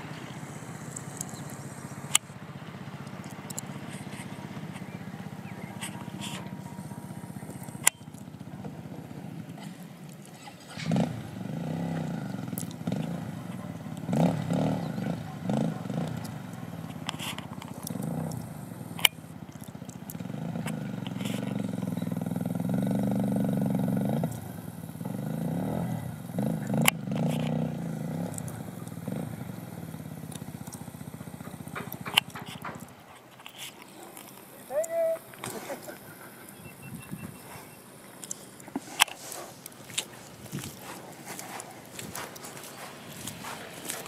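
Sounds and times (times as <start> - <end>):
motorcycle engine revving: 0.0 - 44.0
sharp clicks: 0.8 - 2.3.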